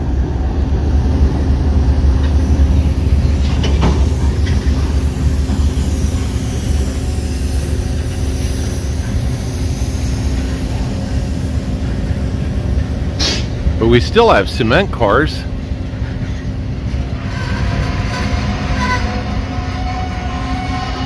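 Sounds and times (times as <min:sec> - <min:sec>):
diesel locomotive hum: 0:00.0 - 0:21.0
freight train rumbling past: 0:00.0 - 0:21.0
train wheel clicks: 0:02.2 - 0:10.9.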